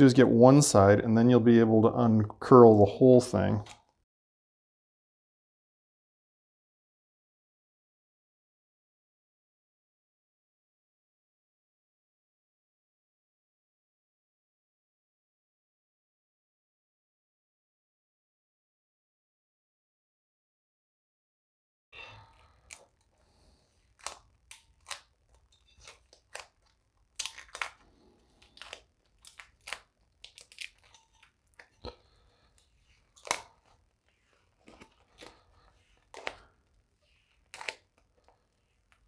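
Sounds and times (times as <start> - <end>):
vinyl film peeling and crackling: 22.3 - 39.0.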